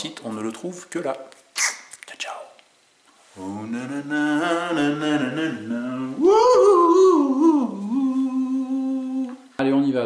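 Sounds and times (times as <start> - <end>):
person humming: 3.4 - 9.5.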